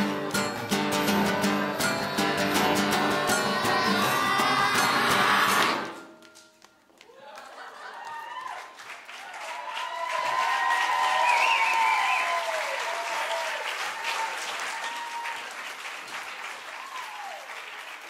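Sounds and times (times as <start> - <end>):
audience applauding: 3.5 - 18.0
cheering shouts and whoops: 7.1 - 15.6, 16.7 - 17.6.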